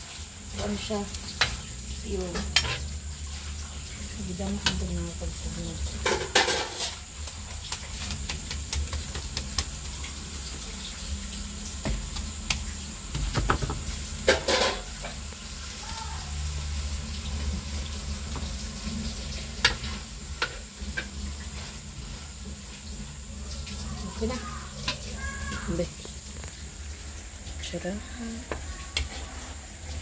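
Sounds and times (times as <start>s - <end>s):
meat sizzling in a wok: 0.0s - 30.0s
metal spatula scraping a wok: 2.3s - 3.6s, 5.9s - 7.1s, 19.2s - 22.4s.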